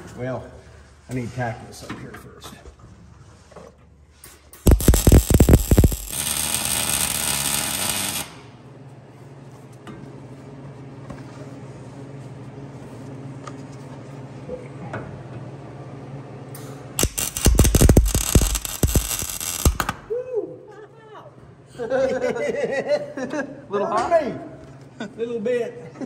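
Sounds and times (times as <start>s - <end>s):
welding arc crackling: 4.5s - 8.6s, 17.0s - 20.1s.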